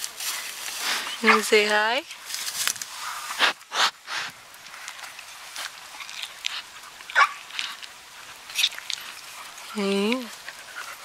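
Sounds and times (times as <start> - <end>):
animal sniffing and blowing air: 0.2 - 1.3, 2.9 - 4.4.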